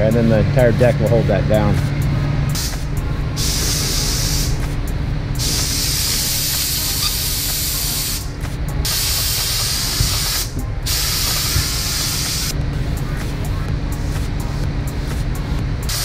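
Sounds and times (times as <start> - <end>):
low rumble: 0.0 - 16.0
spray gun hissing: 2.6 - 4.7, 5.4 - 12.6.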